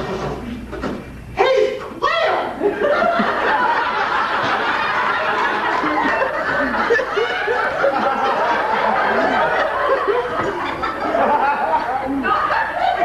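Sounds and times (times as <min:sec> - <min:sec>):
audience laughing: 0:02.6 - 0:13.0.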